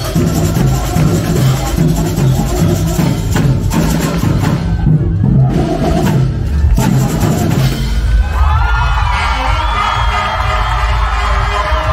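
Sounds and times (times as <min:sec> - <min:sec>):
samba drums and percussion: 0:00.0 - 0:11.9
crowd cheering: 0:04.2 - 0:11.9.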